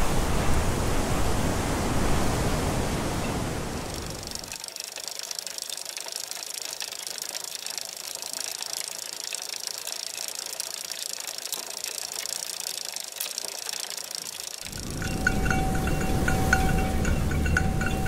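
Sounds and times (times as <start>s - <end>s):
bicycle rolling on rough tarmac: 3.8s - 18.0s.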